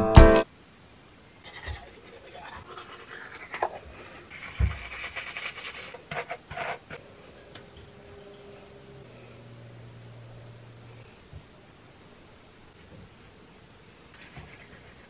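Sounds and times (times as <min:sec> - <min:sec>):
toothbrush scrubbing teeth: 0:01.5 - 0:07.0, 0:14.2 - 0:15.0.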